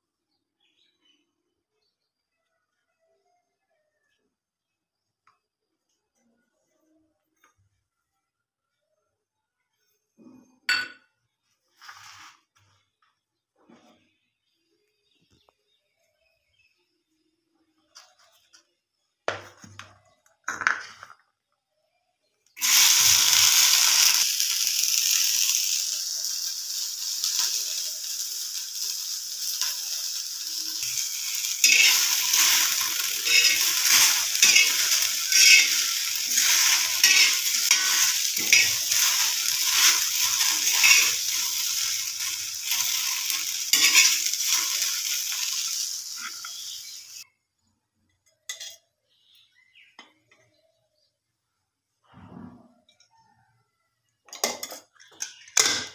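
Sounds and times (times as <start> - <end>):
okra sizzling on a hot pan: 11.7 - 12.5, 22.5 - 47.3
spatula clicking and scraping: 30.8 - 46.7.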